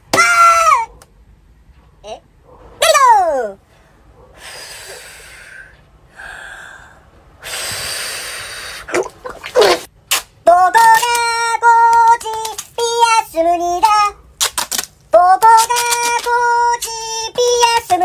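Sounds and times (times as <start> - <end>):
man exhaling and gasping: 4.4 - 9.0.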